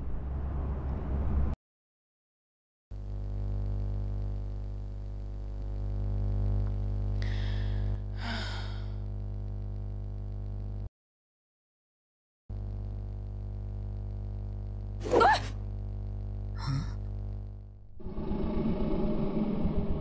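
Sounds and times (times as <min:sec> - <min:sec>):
steady low hum: 0:03.0 - 0:10.9, 0:12.5 - 0:20.0
person breathing in and sighing: 0:07.2 - 0:09.1, 0:16.6 - 0:17.0.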